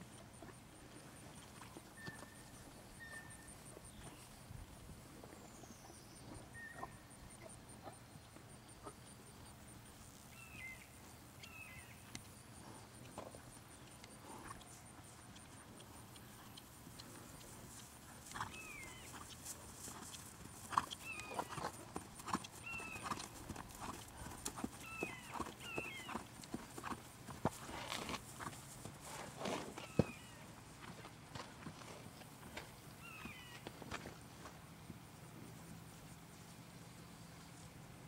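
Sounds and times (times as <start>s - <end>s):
horse hoofbeats on grass: 12.6s - 38.0s.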